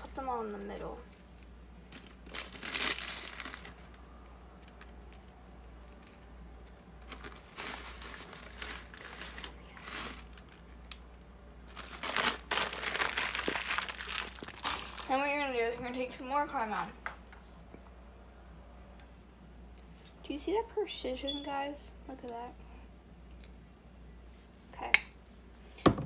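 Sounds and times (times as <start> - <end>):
plastic candy wrapper crinkling: 0.0 - 15.6.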